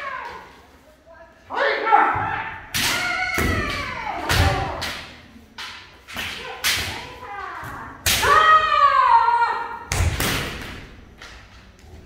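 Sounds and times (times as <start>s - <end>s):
people shouting: 1.5s - 4.9s, 6.4s - 9.9s
bamboo swords striking: 2.7s - 7.2s.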